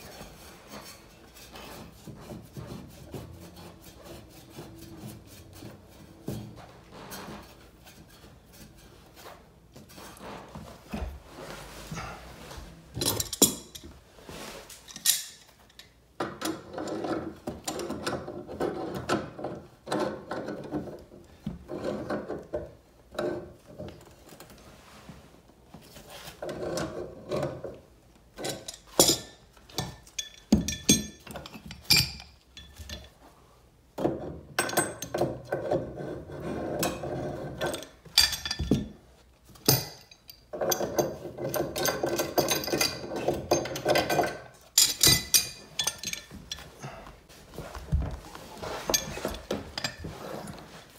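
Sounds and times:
tools scraping and grinding metal: 0.0s - 25.1s, 25.8s - 33.2s, 34.0s - 50.9s
metal tools clicking and clanking: 13.0s - 14.0s, 14.8s - 18.3s, 28.4s - 33.2s, 34.6s - 35.8s, 36.8s - 47.1s, 48.7s - 50.6s.

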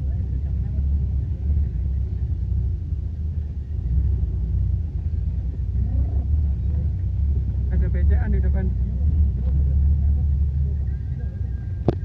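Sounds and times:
jeep rumbling on dirt track: 0.0s - 12.0s.

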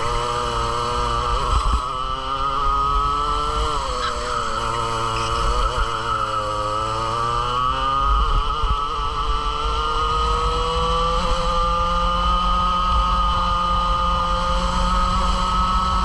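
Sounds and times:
two-stroke kart engine: 0.0s - 16.0s.

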